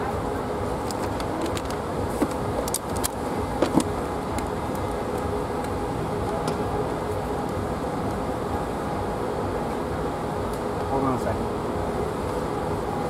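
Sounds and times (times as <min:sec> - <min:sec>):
faint hum: 0:00.0 - 0:13.0
low mechanical rumble: 0:00.0 - 0:13.0.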